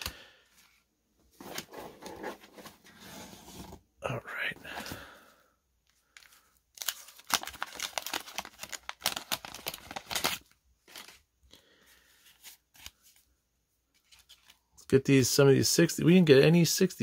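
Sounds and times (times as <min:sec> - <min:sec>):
cards rustling: 0:05.9 - 0:13.3, 0:13.9 - 0:14.8
wax paper wrapper tearing: 0:06.8 - 0:11.1.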